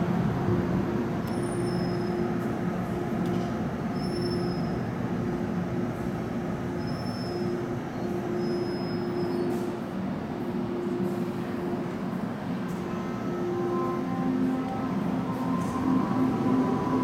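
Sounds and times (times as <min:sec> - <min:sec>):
high-pitched wheel squeals: 0:01.3 - 0:02.2, 0:03.9 - 0:04.8, 0:06.8 - 0:09.7.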